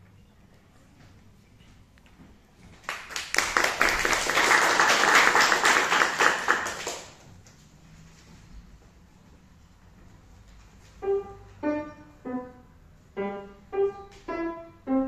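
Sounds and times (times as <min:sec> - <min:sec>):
audience applauding: 0:02.8 - 0:07.2.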